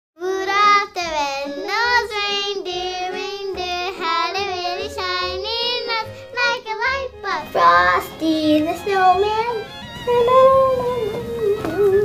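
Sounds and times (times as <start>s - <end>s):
child singing: 0.2s - 9.6s.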